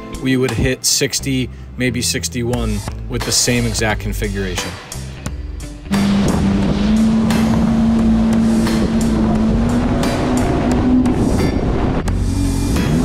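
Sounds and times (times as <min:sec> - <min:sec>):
jet ski engine drone: 0:05.8 - 0:13.0
water rushing: 0:05.9 - 0:12.8
wind: 0:05.9 - 0:13.0.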